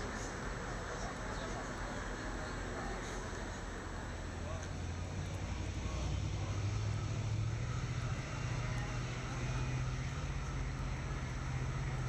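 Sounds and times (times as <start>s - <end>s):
ship engine droning: 0.0s - 12.0s.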